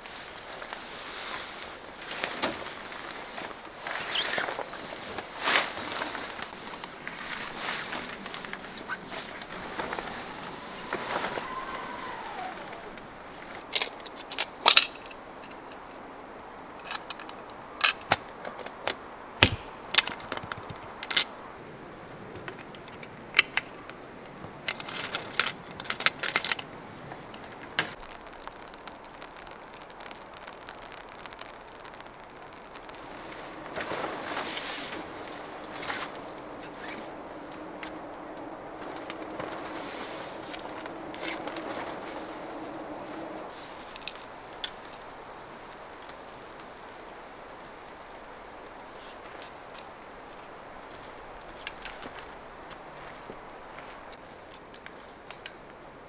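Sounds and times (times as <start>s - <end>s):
tarp fabric rustling: 0.0s - 16.7s, 23.9s - 56.0s.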